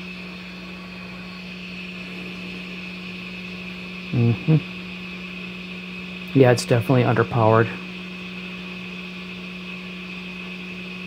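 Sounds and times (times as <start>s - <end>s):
hot air blower rushing: 0.0s - 11.0s
person murmuring: 4.1s - 4.7s.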